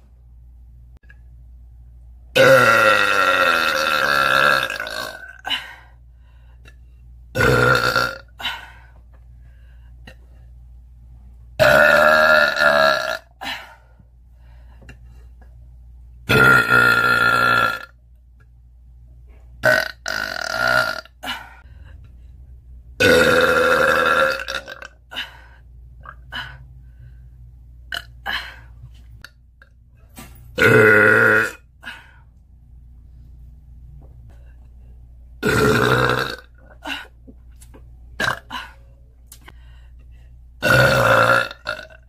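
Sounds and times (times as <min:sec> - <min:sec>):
woman burping loudly: 0:02.3 - 0:05.6, 0:07.4 - 0:08.6, 0:11.6 - 0:13.6, 0:16.3 - 0:18.0, 0:19.6 - 0:21.5, 0:23.0 - 0:25.2, 0:27.9 - 0:28.5, 0:30.6 - 0:31.7, 0:35.4 - 0:37.1, 0:38.2 - 0:38.7, 0:40.6 - 0:42.0.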